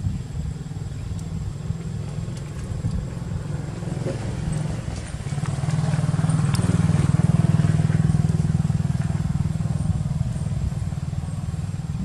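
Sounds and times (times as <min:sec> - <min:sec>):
small engine idling: 0:00.4 - 0:12.0.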